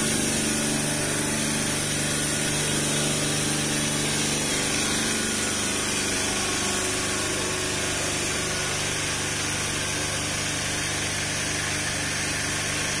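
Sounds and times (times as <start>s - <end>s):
pump motor drone: 0.0s - 13.0s.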